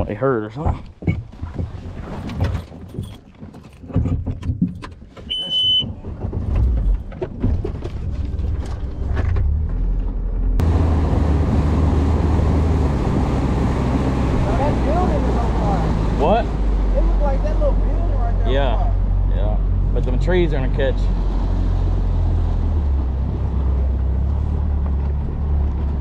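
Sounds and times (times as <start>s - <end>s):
knocks and clatter on boat: 0.0s - 18.4s, 21.1s - 26.0s
short electronic beep: 5.3s - 5.9s
boat motor running: 5.5s - 26.0s
wind and water rushing: 10.6s - 26.0s.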